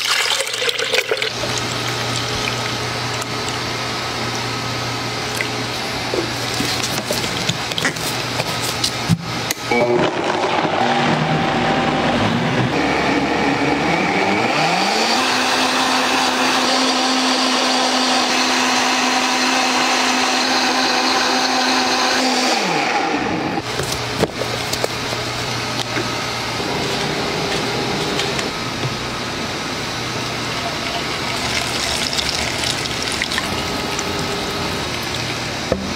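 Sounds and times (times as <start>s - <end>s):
blender motor running: 9.4s - 24.0s, 24.8s - 35.8s.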